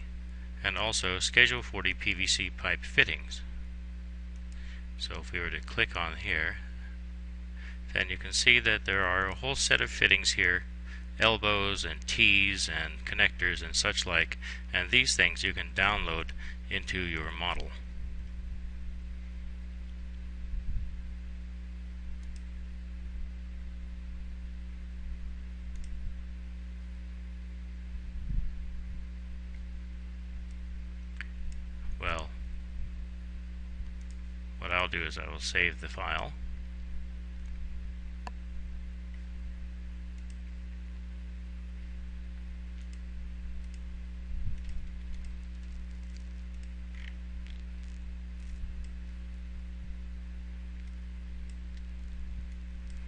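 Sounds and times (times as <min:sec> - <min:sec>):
electrical hum and hiss: 0:00.0 - 0:53.0
computer mouse clicks: 0:22.2 - 0:22.5, 0:25.7 - 0:26.0.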